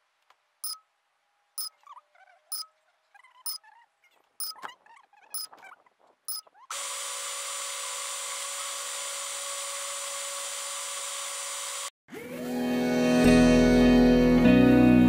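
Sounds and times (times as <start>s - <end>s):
quadcopter motors whining: 6.7s - 11.9s.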